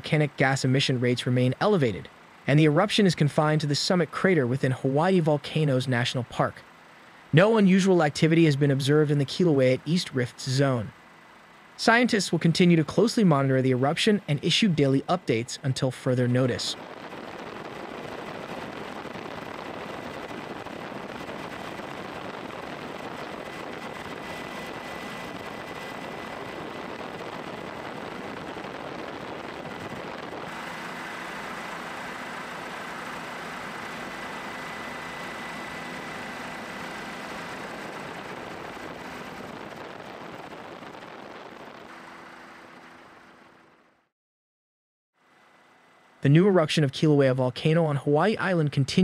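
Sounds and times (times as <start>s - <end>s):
helicopter in flight: 13.8s - 44.1s, 45.2s - 46.2s.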